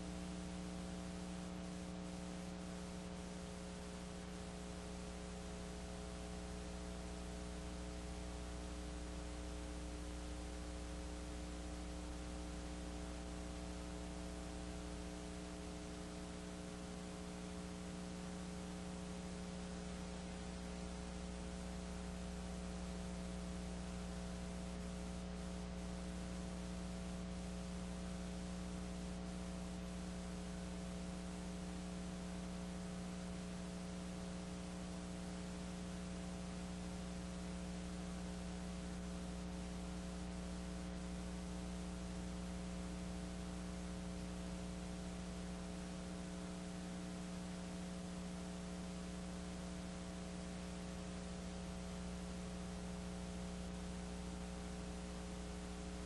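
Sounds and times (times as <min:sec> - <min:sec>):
constant hiss: 0:00.0 - 0:56.0
electrical mains hum: 0:00.0 - 0:56.0.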